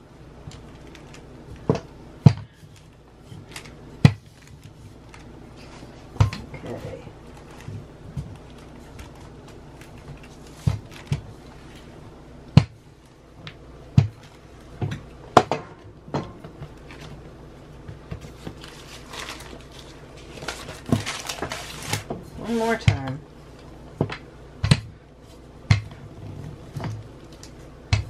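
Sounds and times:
rolling pin rolling dough: 0.0 - 28.0
steady low hum: 0.0 - 28.0
paper rustling: 0.5 - 1.6, 2.7 - 12.0, 18.2 - 22.8.

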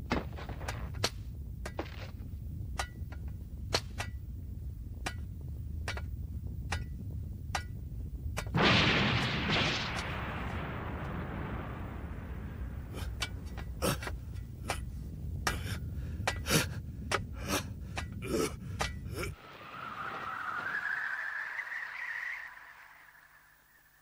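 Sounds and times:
steady low rumble: 0.0 - 20.7
sharp cracks with high ring: 8.4 - 14.9
loud rush of noise: 19.3 - 24.0.

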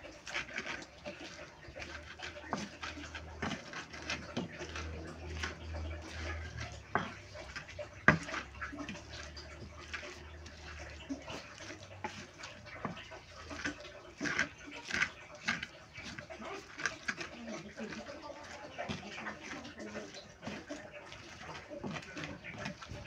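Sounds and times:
pestle grinding wet squishing: 0.0 - 23.0
wood knocking on mortar: 0.0 - 23.0.

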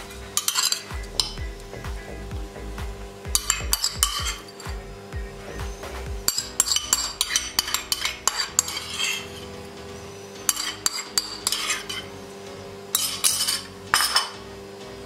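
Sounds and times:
metal spoon clinking on dish: 0.4 - 0.9, 6.3 - 9.4, 10.4 - 12.1, 13.0 - 14.4.

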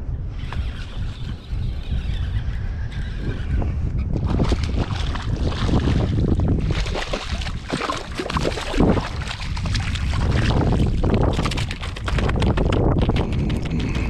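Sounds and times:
wind rumble on microphone: 0.0 - 14.0
fish thrashing and splashing: 4.2 - 14.0.

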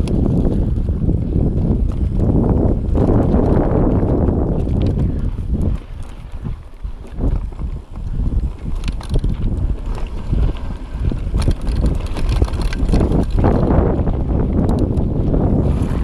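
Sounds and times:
bike rattling over bumps: 0.0 - 16.0
wind buffeting microphone: 0.0 - 16.0
tyres rolling over dirt and rock: 1.6 - 14.0.

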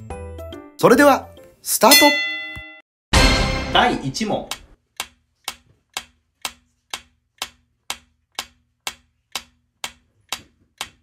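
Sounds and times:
clock-like timer ticks: 4.2 - 11.0.

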